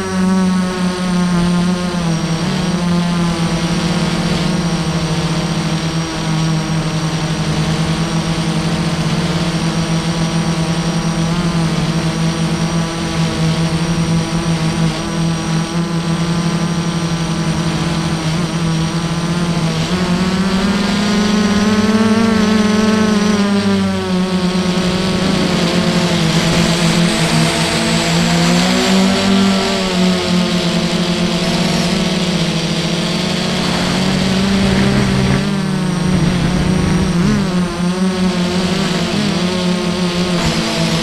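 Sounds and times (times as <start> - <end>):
quadcopter motors whining: 0.0 - 41.0.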